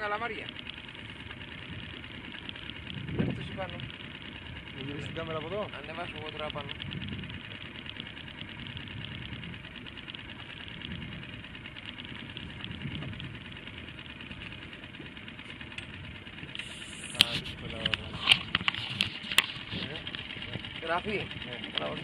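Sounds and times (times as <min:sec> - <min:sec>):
boat engine idling: 0:00.0 - 0:22.0.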